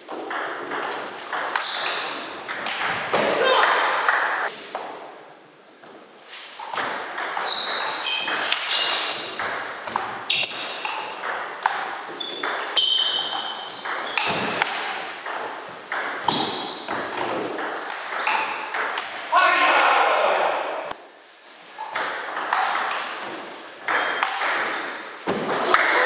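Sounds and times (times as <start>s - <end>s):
shoes squeaking on wooden floor: 0.7s - 3.3s, 6.3s - 15.5s, 16.2s - 18.9s, 21.6s - 25.8s.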